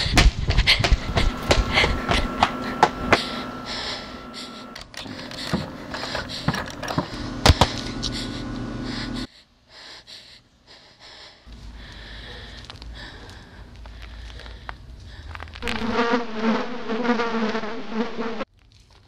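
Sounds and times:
low steady hum: 0.4 - 9.3
thin high tone: 1.2 - 5.4.

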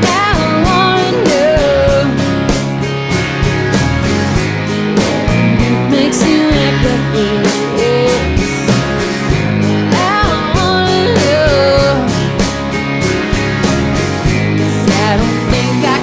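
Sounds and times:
woman singing lead: 0.0 - 2.7, 4.8 - 12.6, 14.5 - 16.0
steady drum beat: 0.0 - 16.0
strummed acoustic guitars: 0.0 - 16.0.

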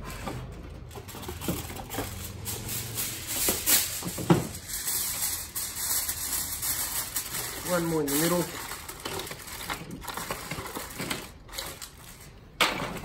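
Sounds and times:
aluminium foil crinkling: 0.8 - 12.6.

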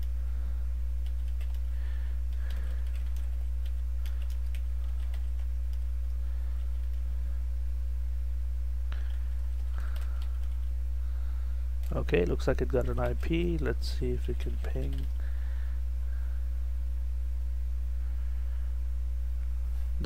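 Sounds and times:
steady low hum: 0.0 - 20.0
keyboard typing: 1.0 - 1.7, 2.3 - 5.9, 6.6 - 7.0, 9.0 - 10.7, 11.8 - 15.2.

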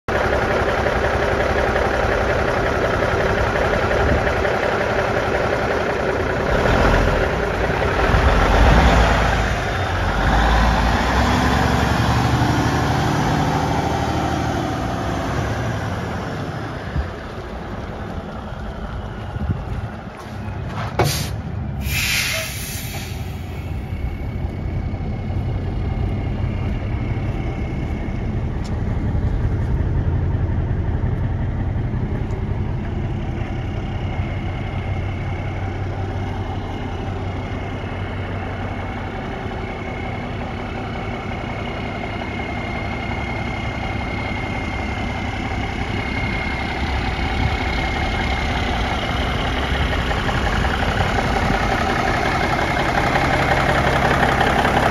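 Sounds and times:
diesel truck engine running: 0.1 - 54.9
air brake click and hiss: 21.0 - 23.9.

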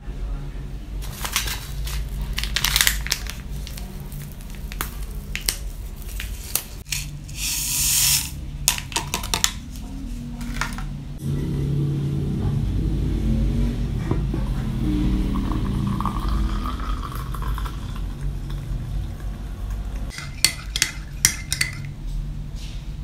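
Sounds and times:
plastic wrapper crackling: 1.0 - 6.9
powder pouring with hiss: 7.3 - 8.4.

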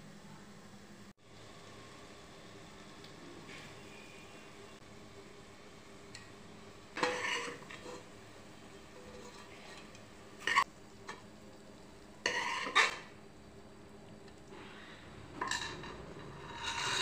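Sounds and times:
ladle scraping metal pot: 7.0 - 8.1, 8.9 - 11.2, 12.2 - 13.2, 15.4 - 17.0.

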